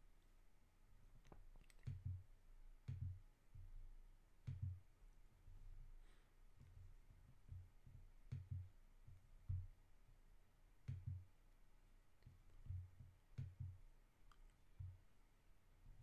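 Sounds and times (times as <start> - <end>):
faint low thumps: 6.6 - 9.8.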